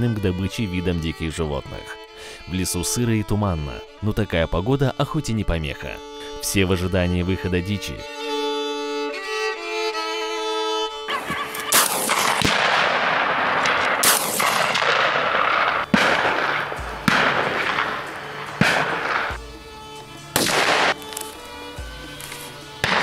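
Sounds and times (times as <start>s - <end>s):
background music: 0.0s - 23.0s
rifle shots with rolling echo: 11.7s - 19.5s, 20.4s - 21.3s.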